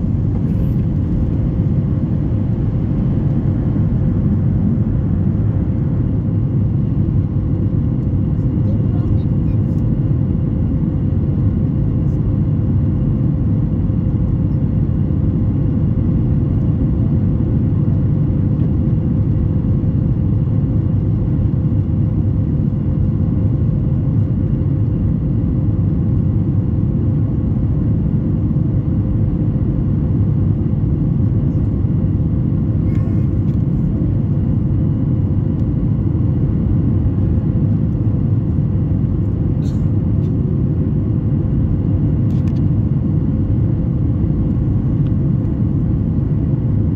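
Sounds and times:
steady hum: 0.0s - 14.1s
airplane cabin engine rumble: 0.0s - 46.9s.

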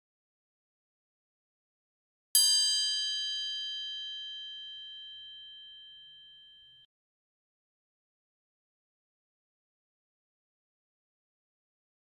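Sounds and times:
bell ding: 2.4s - 6.9s.

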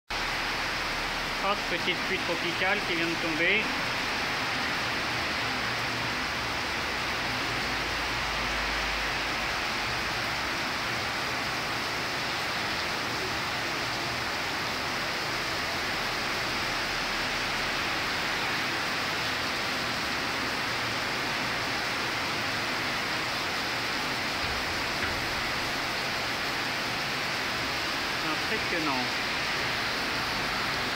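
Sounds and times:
heavy rain falling: 0.1s - 30.9s.

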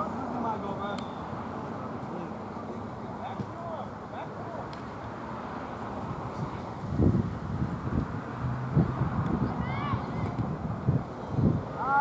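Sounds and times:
wind buffeting microphone: 6.0s - 11.8s.

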